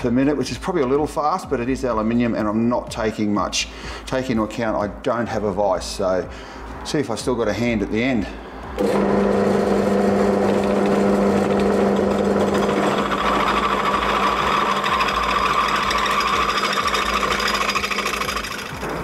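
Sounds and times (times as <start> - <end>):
drill bit cutting whine: 8.8 - 19.0
drill press motor hum: 8.8 - 19.0.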